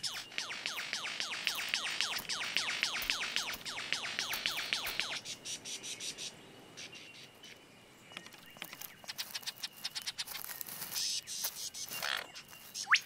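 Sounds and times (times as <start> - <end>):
lyrebird rapid clicks: 0.0 - 5.2, 8.2 - 13.0.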